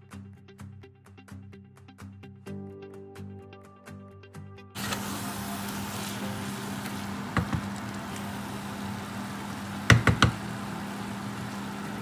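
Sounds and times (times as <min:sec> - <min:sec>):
food frying in a pot: 0:04.8 - 0:12.0
induction hob hum: 0:04.8 - 0:12.0
sharp knocks: 0:09.9 - 0:10.4.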